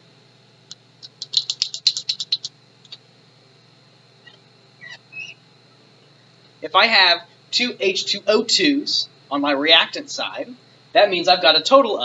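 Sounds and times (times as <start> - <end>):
marker squeaking on glass: 4.2 - 5.4.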